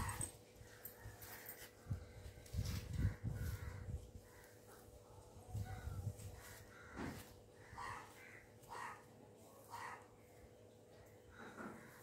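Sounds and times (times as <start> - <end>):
crow cawing: 6.4 - 10.3, 11.3 - 12.0.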